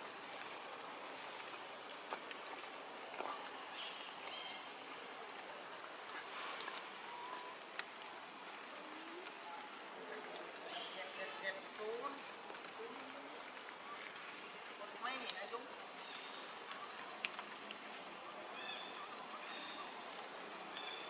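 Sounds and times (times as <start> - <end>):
steady hiss: 0.0 - 21.0
faint bird chirps and calls: 3.2 - 5.0, 6.1 - 11.9, 15.0 - 21.0.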